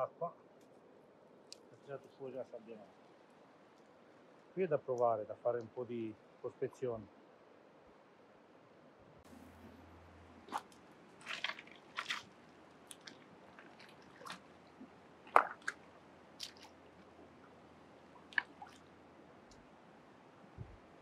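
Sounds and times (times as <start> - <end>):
faint stream noise: 0.0 - 21.0
hand tool digging wet gravel: 10.4 - 14.4.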